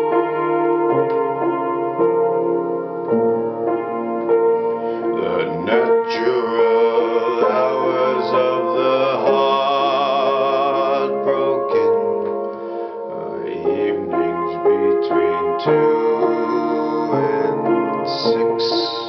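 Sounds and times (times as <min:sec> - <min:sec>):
piano chords: 0:00.0 - 0:19.0
person singing long held notes: 0:05.2 - 0:19.0.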